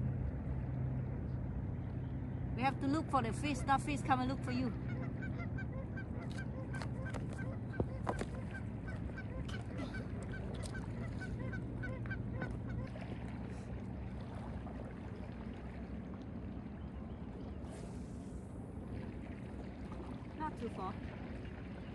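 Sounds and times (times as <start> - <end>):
low wind rumble: 0.0 - 21.9
geese honking: 3.4 - 12.9.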